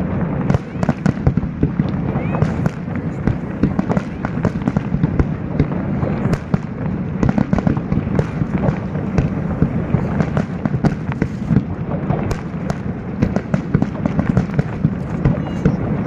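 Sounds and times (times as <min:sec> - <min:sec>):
firework booms and cracks: 0:00.0 - 0:16.0.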